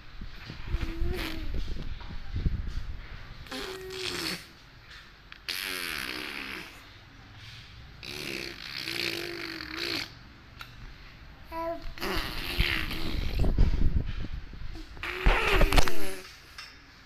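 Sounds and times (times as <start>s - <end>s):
baby making breathy humming noises: 0.5s - 1.9s, 3.4s - 4.6s, 5.4s - 6.9s, 8.0s - 10.2s, 11.4s - 14.0s, 14.7s - 16.4s.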